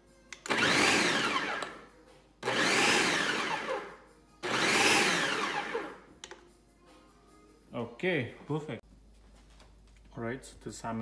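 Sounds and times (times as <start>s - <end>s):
food processor motor whine: 0.5s - 1.8s, 2.4s - 6.0s.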